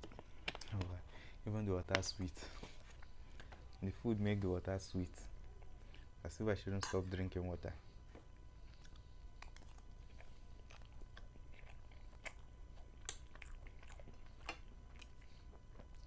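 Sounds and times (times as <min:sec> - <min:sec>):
person chewing pasta: 0:08.0 - 0:16.0.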